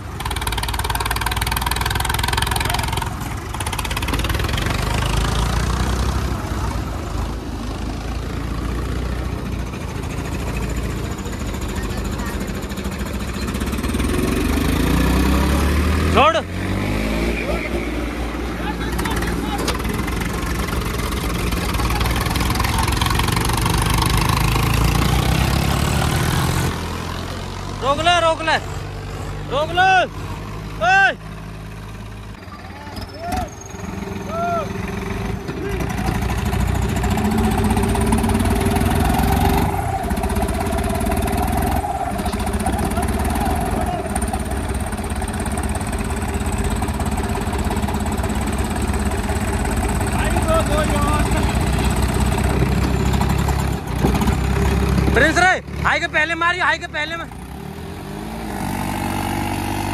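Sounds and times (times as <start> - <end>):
heavy diesel engines running: 0.0 - 59.9.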